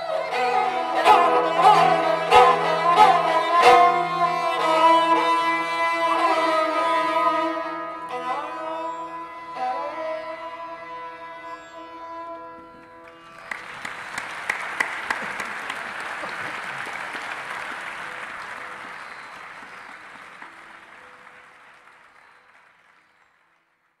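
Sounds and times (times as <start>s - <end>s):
bowed strings over a drone: 0.0s - 12.9s
audience applause: 1.0s - 4.7s, 13.3s - 23.8s.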